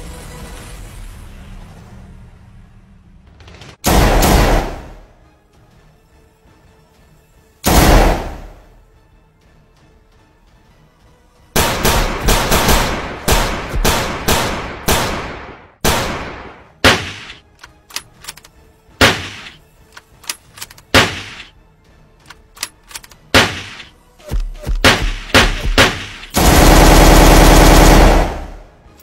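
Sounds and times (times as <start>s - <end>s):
gunshots with echo: 3.8s - 5.0s, 7.7s - 8.6s, 11.6s - 17.4s, 19.0s - 19.6s, 20.9s - 21.5s, 23.3s - 28.7s
small clicks: 17.5s - 18.6s, 19.4s - 21.5s, 22.2s - 23.3s.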